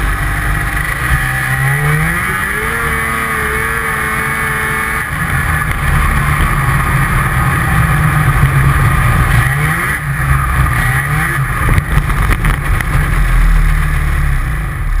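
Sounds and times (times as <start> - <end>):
snowmobile engine running: 0.0 - 15.0.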